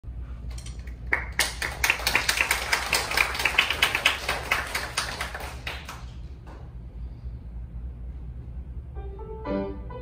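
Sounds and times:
children clapping: 0.8s - 6.4s.

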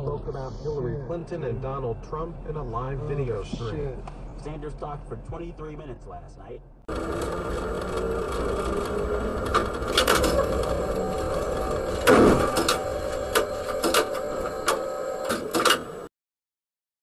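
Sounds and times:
tram rolling rumble on rails: 6.9s - 16.1s
loud thud: 12.1s - 12.6s.

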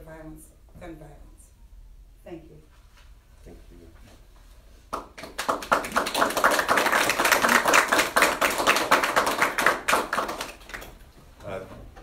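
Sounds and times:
people applauding: 4.9s - 11.0s.

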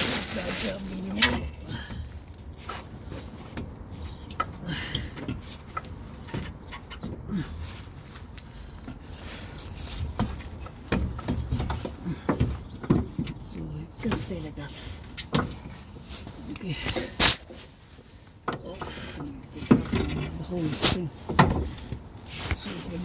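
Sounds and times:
light metal clicks and knocks: 0.0s - 17.2s.

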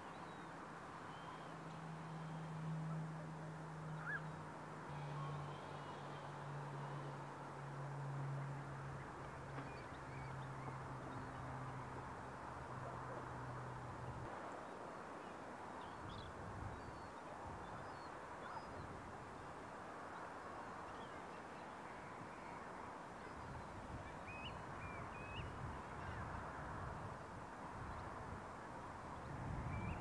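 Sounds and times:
short high bird calls: 4.0s - 6.3s.

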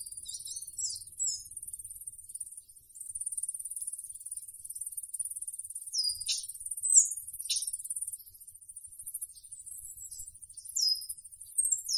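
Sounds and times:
insects trilling: 0.0s - 11.9s
short high bird chirps: 6.0s - 7.7s.

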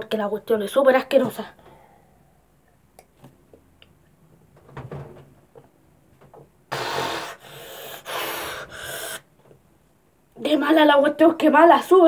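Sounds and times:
boy gasping harshly: 6.7s - 9.3s.

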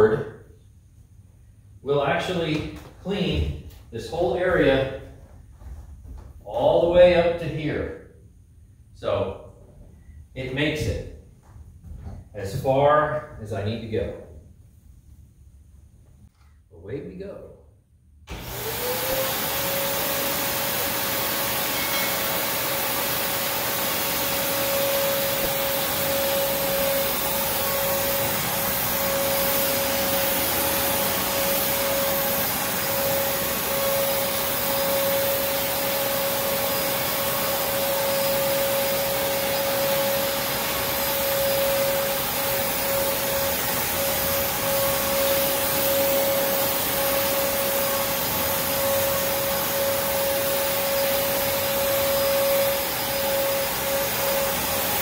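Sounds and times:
vacuum cleaner whine and hiss: 18.3s - 55.0s.

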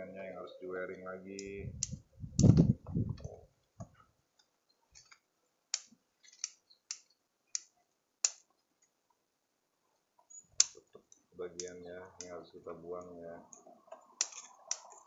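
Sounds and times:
scissors snipping twigs: 5.0s - 8.5s, 10.6s - 11.0s, 11.6s - 12.4s, 13.5s - 15.0s.

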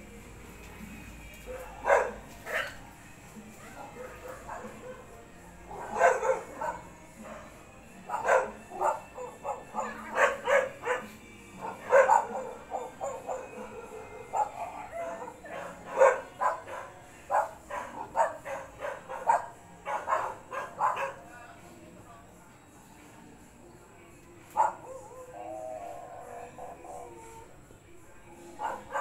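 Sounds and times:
dog barking: 1.5s - 2.8s, 3.8s - 21.3s, 24.6s - 25.2s, 28.6s - 29.0s.

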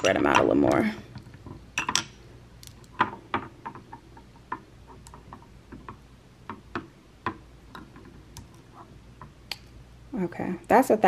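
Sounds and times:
glass bottles tapping on stone: 1.8s - 2.2s.

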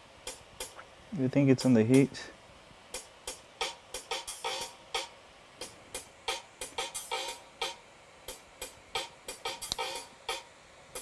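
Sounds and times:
drum machine beat: 0.2s - 2.2s, 2.9s - 11.0s.

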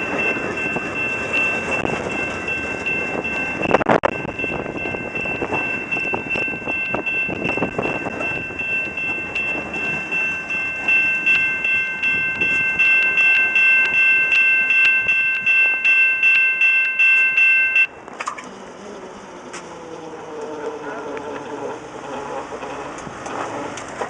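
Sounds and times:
railroad crossing bell ringing: 0.0s - 19.3s
freight train cars rumbling and clicking: 0.0s - 24.0s.

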